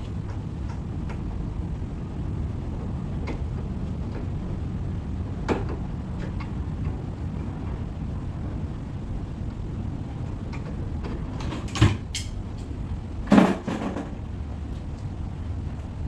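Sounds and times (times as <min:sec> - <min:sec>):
steady low rumble: 0:00.0 - 0:16.0
knocks and clicks of wooden cabinet: 0:13.3 - 0:14.2.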